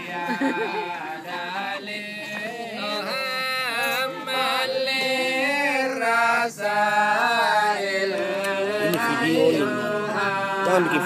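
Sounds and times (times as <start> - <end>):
voices chanting held notes: 0.0 - 11.0.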